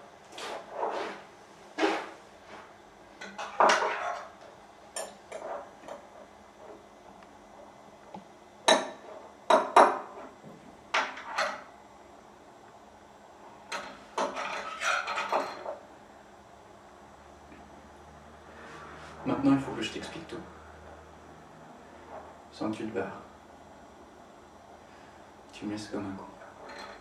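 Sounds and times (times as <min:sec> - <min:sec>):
crockery and cutlery clinking: 0:26.6 - 0:27.0.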